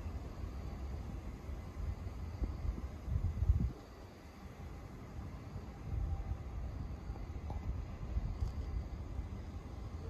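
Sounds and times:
faint hiss: 0.0s - 10.0s
wind on microphone: 1.9s - 3.9s.

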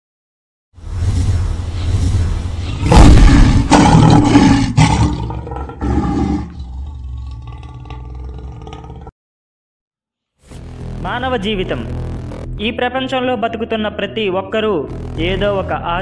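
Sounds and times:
low rumble: 0.8s - 4.2s
sharp hits: 1.0s - 4.3s
lion roar: 2.6s - 9.1s.

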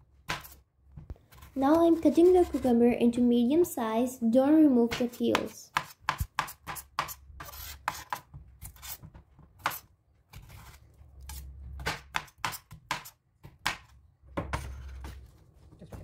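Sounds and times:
knife chopping on wooden board: 0.2s - 0.6s, 4.9s - 10.5s, 11.3s - 14.6s.

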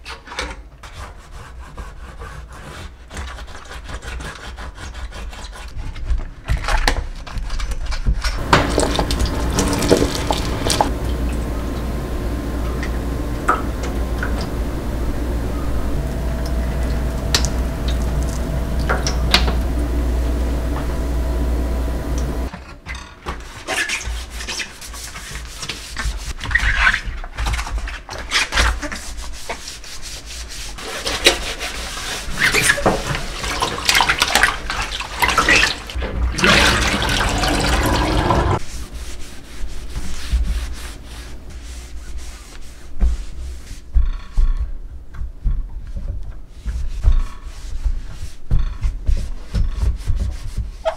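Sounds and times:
cloth scrubbing steel sink: 8.4s - 22.5s, 28.4s - 43.9s
water pouring into steel sink: 8.4s - 22.5s, 33.1s - 38.6s.

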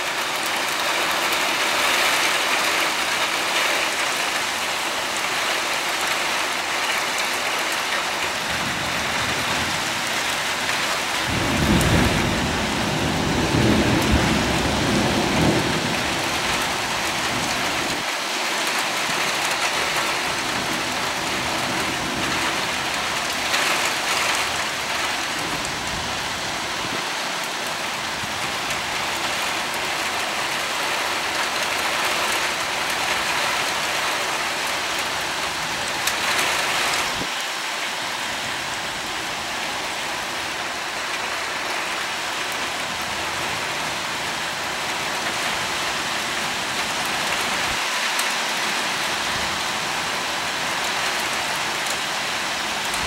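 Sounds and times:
steady rain hissing: 0.0s - 53.0s
thunder rumbling: 8.6s - 18.1s.

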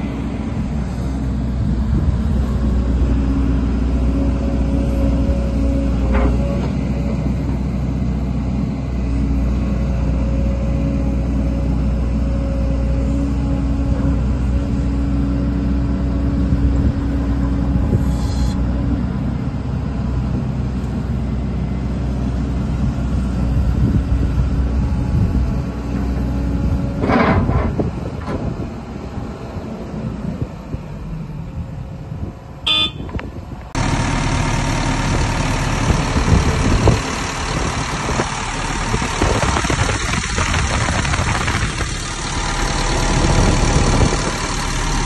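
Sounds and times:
excavator diesel engine running: 0.0s - 45.0s
brief hiss: 18.0s - 18.6s.

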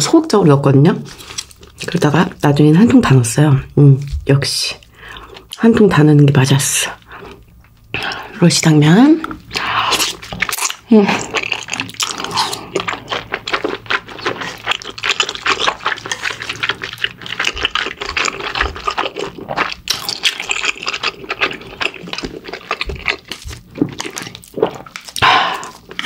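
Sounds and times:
noodles being slurped and chewed: 9.4s - 26.0s.

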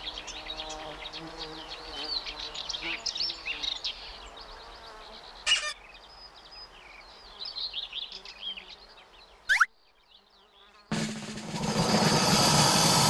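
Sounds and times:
birds chirping and singing: 0.0s - 10.7s
short loud burst: 10.9s - 13.0s.

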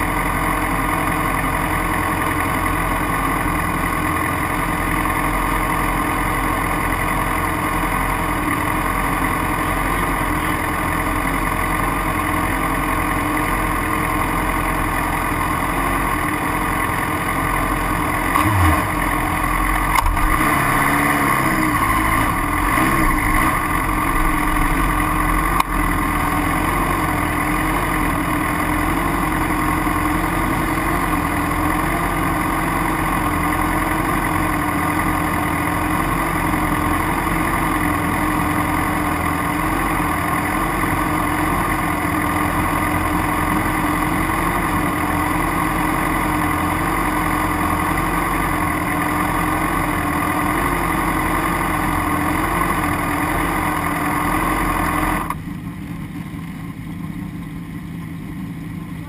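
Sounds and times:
motorcycle engine revving: 0.0s - 55.4s
motorcycle engine idling: 0.0s - 59.0s.

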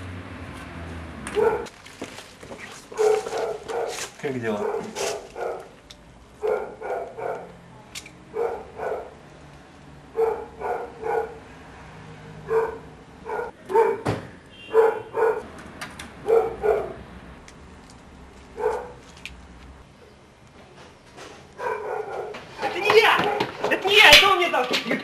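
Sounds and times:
dog barking: 1.4s - 1.7s, 2.9s - 5.7s, 6.4s - 7.5s, 8.3s - 9.2s, 10.2s - 11.4s, 12.4s - 14.0s, 14.7s - 15.5s, 16.2s - 17.0s, 18.6s - 19.0s, 21.6s - 23.5s.

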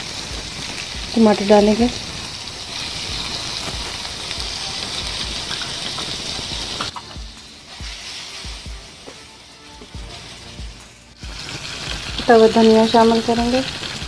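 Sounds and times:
tomatoes sizzling in hot oil: 0.0s - 14.0s.

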